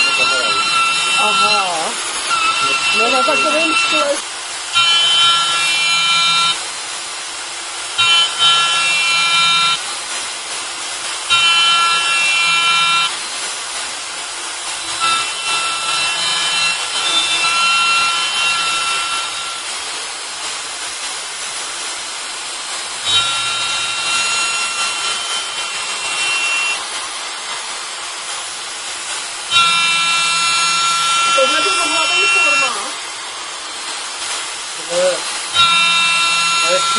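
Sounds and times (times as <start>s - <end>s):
router motor whine cutting wood: 0.0s - 4.2s, 4.8s - 6.6s, 8.0s - 9.8s, 11.3s - 13.1s, 14.8s - 19.6s, 23.0s - 26.8s, 29.5s - 33.0s, 35.5s - 36.9s.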